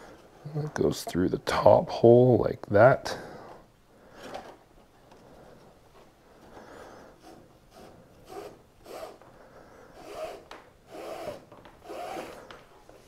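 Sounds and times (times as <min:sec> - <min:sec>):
rope rubbing through plastic: 0:10.0 - 0:13.0.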